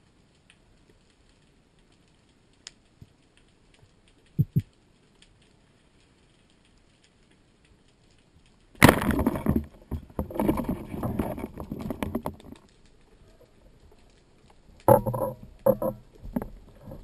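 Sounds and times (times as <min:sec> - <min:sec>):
water churning underwater: 0:08.7 - 0:17.0.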